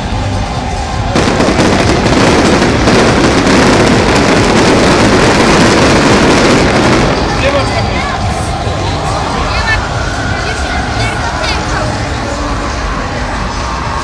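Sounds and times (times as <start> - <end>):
fireworks crackling and bursting: 1.0 - 8.4.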